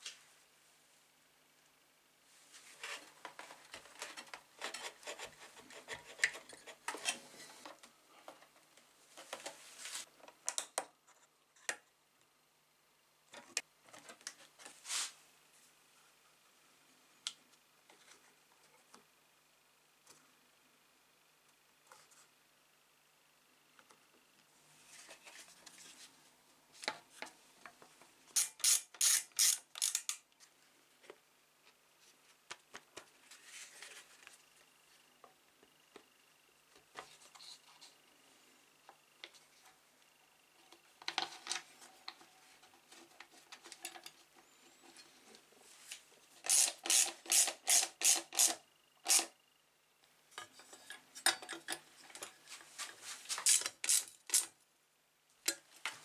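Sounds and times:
hand ratchet clicking: 28.4s - 30.2s, 46.5s - 49.3s, 53.4s - 54.5s.

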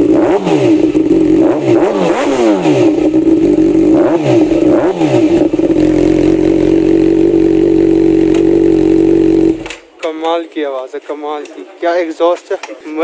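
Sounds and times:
motorcycle engine revving: 0.0s - 9.8s.

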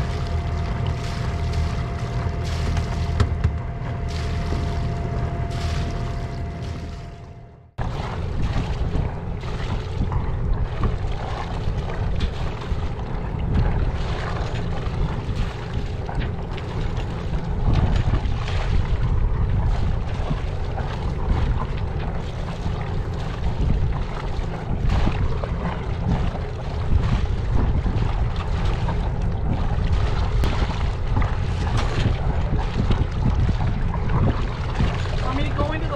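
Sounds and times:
water washing along boat hull: 0.0s - 35.9s
wind noise on microphone: 7.8s - 35.9s.

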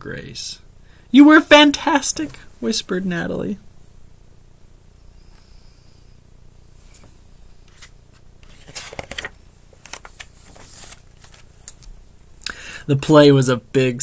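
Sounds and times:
low steady hum: 0.0s - 14.0s
paper page rustling: 6.9s - 11.9s.

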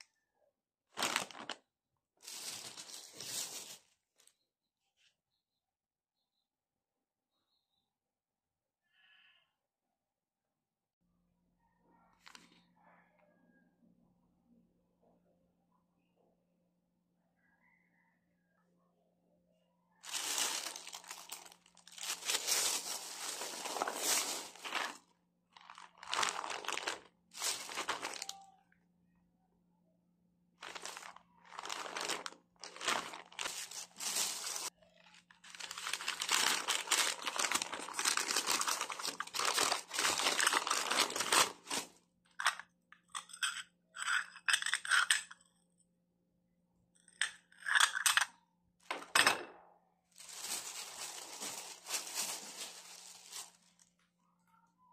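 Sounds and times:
plastic bags crinkling: 1.0s - 1.6s, 2.2s - 4.0s, 20.0s - 28.5s, 30.6s - 41.9s, 50.2s - 54.0s.

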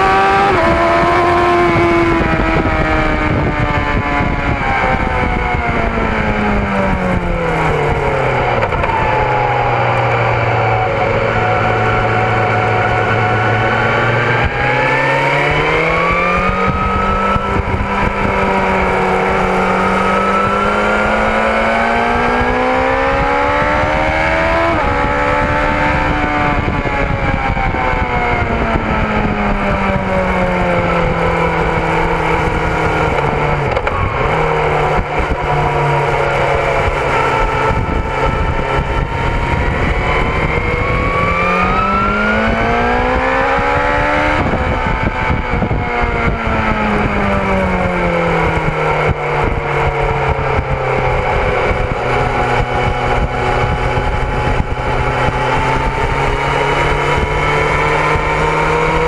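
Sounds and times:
motorcycle engine at speed: 0.0s - 59.0s
wind rush on microphone: 0.0s - 59.0s.

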